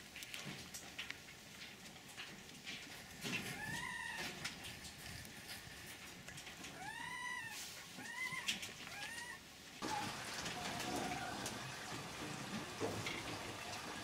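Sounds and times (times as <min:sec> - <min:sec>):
foxes whining: 0:03.4 - 0:05.6, 0:06.6 - 0:11.6.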